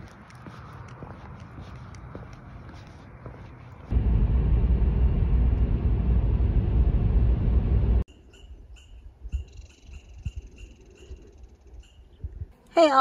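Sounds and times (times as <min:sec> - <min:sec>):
loud low rumble: 0:03.9 - 0:08.1.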